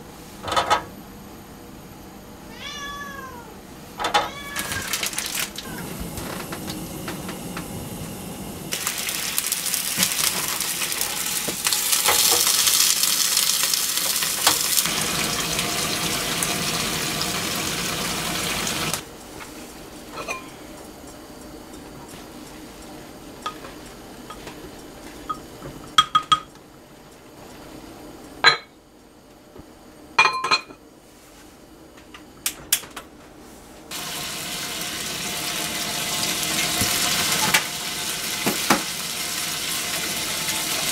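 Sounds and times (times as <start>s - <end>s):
gas stove hissing: 4.9s - 19.1s, 33.9s - 40.9s
oil heating in frying pan: 5.2s - 19.1s, 33.9s - 40.9s.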